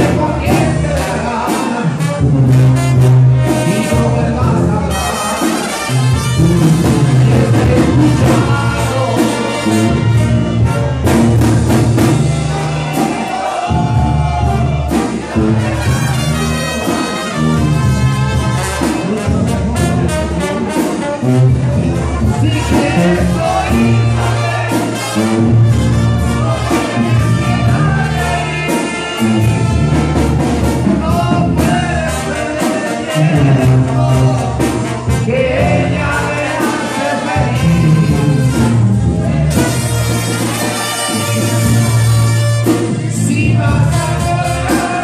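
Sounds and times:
low bass line: 0:00.0 - 0:05.1, 0:05.9 - 0:16.8, 0:17.4 - 0:32.5, 0:37.3 - 0:40.6
brass band playing: 0:00.0 - 0:45.0.

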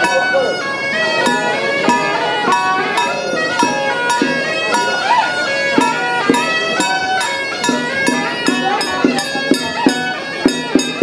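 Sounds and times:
cymbals: 0:00.0 - 0:11.0
drum strikes: 0:00.0 - 0:11.0
shawm melody: 0:00.0 - 0:11.0.

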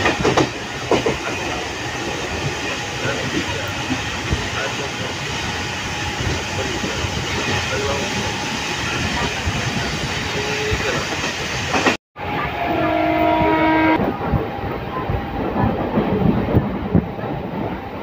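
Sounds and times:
train horn: 0:12.2 - 0:14.2.

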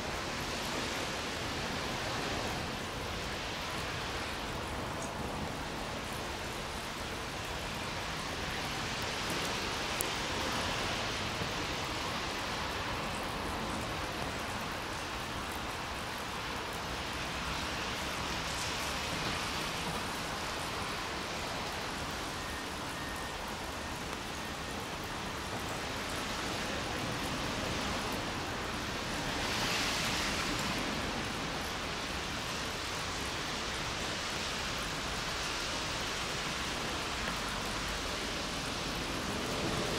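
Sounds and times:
light rain hissing: 0:00.0 - 0:39.9
passing vehicles: 0:00.0 - 0:39.9.

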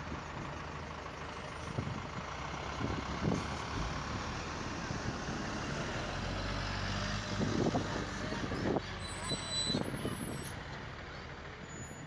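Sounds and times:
truck engine idling: 0:00.0 - 0:06.7
road traffic: 0:00.0 - 0:12.0.

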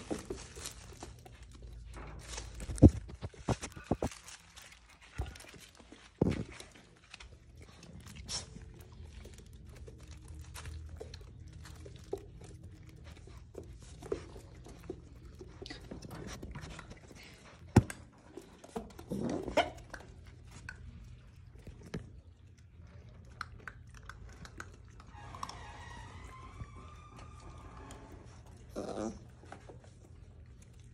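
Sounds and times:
claws scuffling on tile floor: 0:00.0 - 0:17.7
puppies chewing and mouthing: 0:00.0 - 0:30.9.

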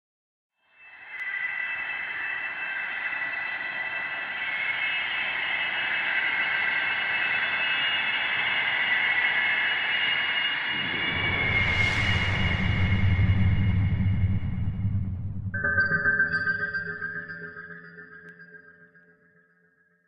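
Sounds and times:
steady high synth tones: 0:10.8 - 0:18.0.

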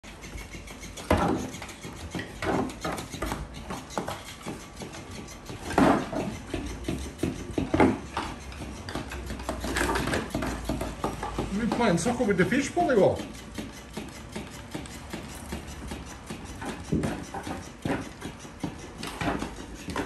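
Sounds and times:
dog claws scuffling on wooden floor: 0:14.5 - 0:20.0.

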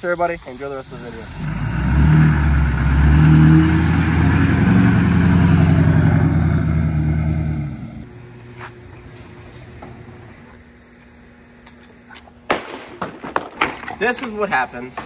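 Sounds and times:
diesel pickup engine running loud: 0:00.8 - 0:08.1.

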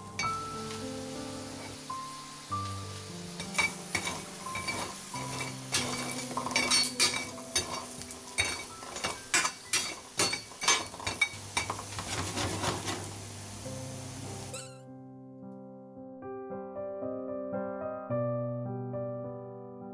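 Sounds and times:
chestnuts clattering in a pan: 0:03.3 - 0:13.2
utensil scraping a pan: 0:03.3 - 0:13.3.

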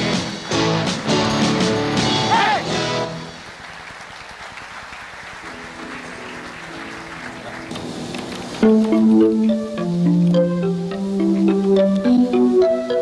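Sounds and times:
audience applause: 0:03.2 - 0:08.4
faint held music tones: 0:05.4 - 0:13.0.

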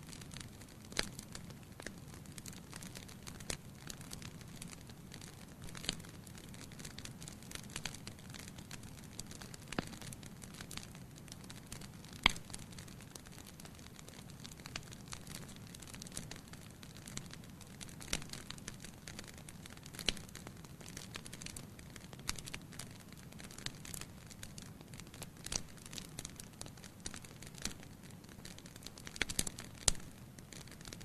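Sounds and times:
fire crackles and pops: 0:00.0 - 0:31.0
low rumble of fire: 0:00.0 - 0:31.0.

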